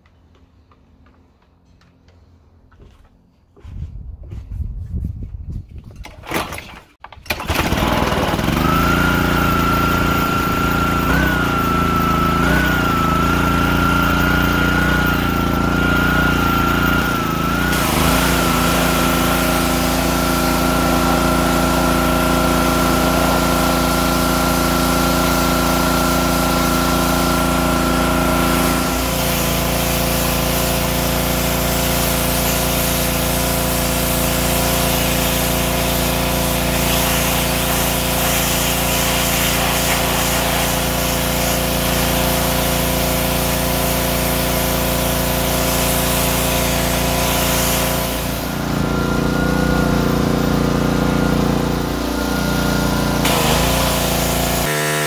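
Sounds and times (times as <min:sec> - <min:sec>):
pressure washer engine running: 0:07.3 - 0:55.0
water spraying from wand: 0:14.6 - 0:50.3, 0:51.4 - 0:55.0.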